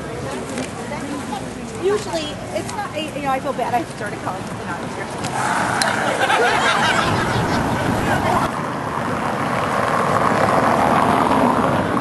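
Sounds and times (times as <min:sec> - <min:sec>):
people's voices: 0:00.0 - 0:08.6
street traffic rushing past: 0:00.0 - 0:12.0.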